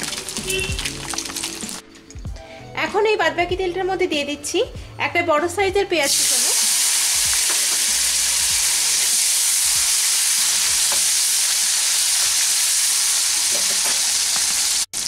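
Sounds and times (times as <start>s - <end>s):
onion sizzling in oil: 6.0s - 15.0s.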